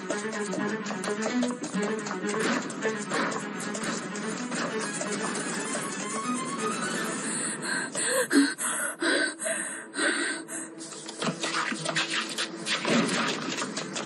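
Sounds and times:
running footsteps on stone: 0.0 - 7.2
woman panting: 6.6 - 10.9.

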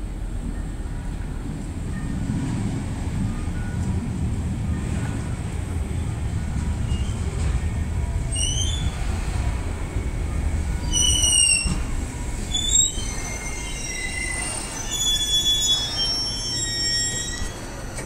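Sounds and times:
electric train rumbling: 0.0 - 18.0
train brakes squealing: 6.8 - 7.6, 8.2 - 9.5, 10.4 - 18.0.

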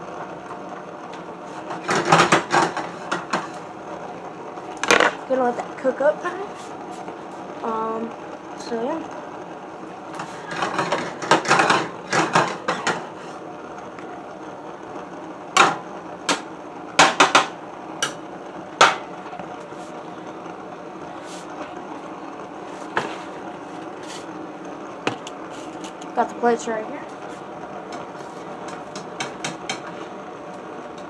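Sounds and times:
frying pan and spatula clattering: 1.7 - 3.6, 10.2 - 13.1, 17.0 - 18.2, 28.7 - 30.0.

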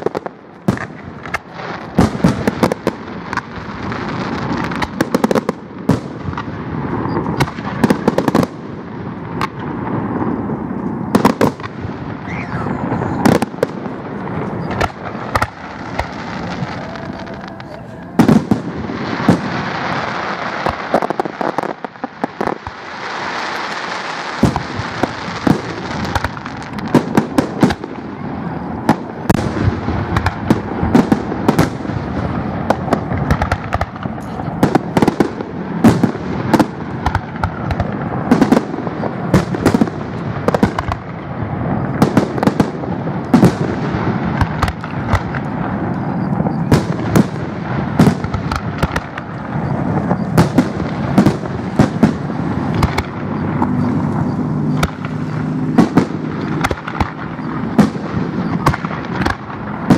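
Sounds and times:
firework crackle: 0.0 - 59.9
firework shells bursting: 0.0 - 59.9.

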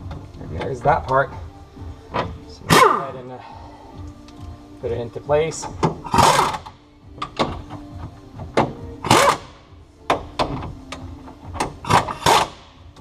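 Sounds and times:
metal clunks and knocks: 1.3 - 2.6, 5.6 - 9.2, 10.0 - 12.2.

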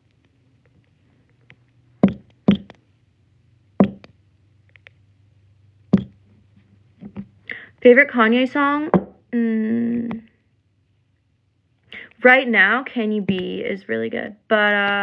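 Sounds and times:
plastic tube knocks and clicks: 2.0 - 2.8, 3.8 - 4.2, 5.9 - 6.2, 8.9 - 9.2.

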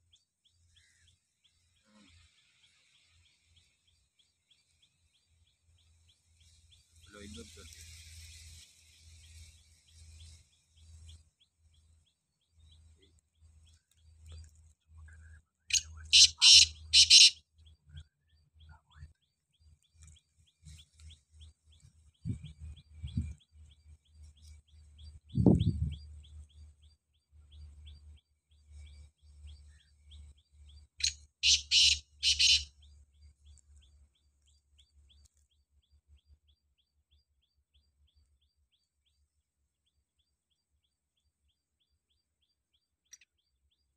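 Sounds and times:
bird harsh rapid call: 15.7 - 17.4, 31.0 - 32.7
faint high chirping: 27.4 - 34.0.

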